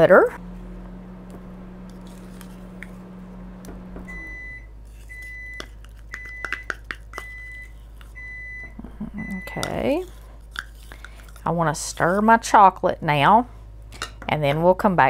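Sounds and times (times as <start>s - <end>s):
microwave oven humming: 0.0s - 10.4s
microwave short beeps: 4.0s - 5.6s, 7.2s - 9.6s.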